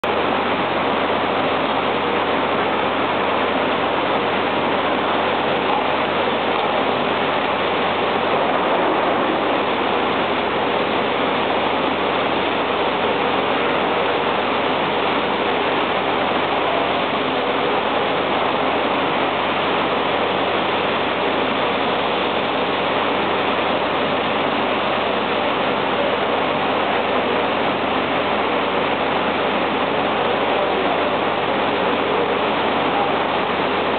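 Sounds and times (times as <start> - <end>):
foundry machinery roaring: 6.4 - 11.8.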